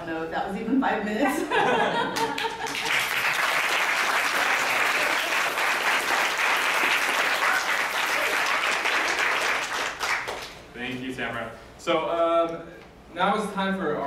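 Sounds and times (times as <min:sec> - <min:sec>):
audience applauding: 0:02.2 - 0:10.6.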